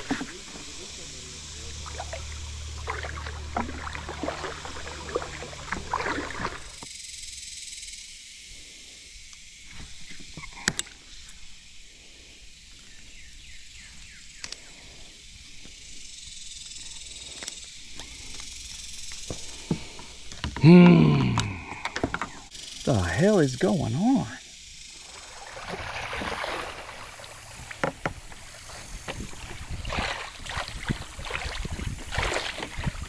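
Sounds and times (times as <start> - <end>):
kayak paddle strokes: 0.0 - 6.8, 25.0 - 33.0
water splashing and dripping: 1.5 - 6.8, 25.0 - 33.0.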